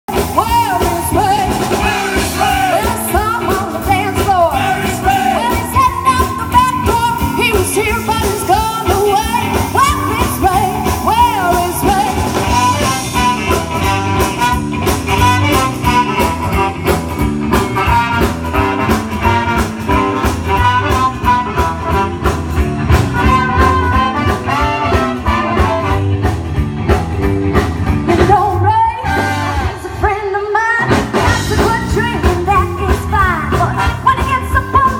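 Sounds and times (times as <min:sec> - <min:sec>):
drums: 0:00.0 - 0:34.9
woman singing: 0:00.1 - 0:13.6, 0:28.1 - 0:34.9
horn section: 0:00.1 - 0:26.7, 0:28.1 - 0:32.4, 0:33.2 - 0:34.9
electric bass: 0:00.1 - 0:34.9
electric guitar: 0:00.1 - 0:34.9.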